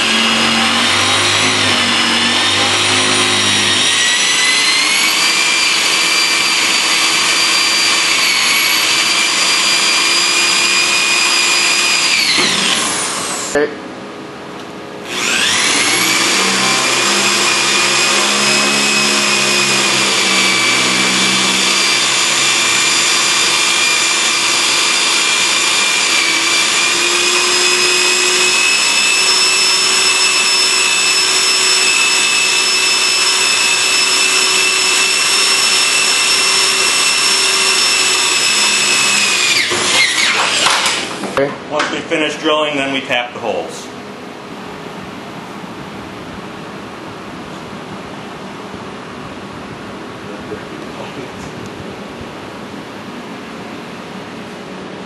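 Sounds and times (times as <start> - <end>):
electric drill whining: 0.0 - 13.6, 15.0 - 41.4.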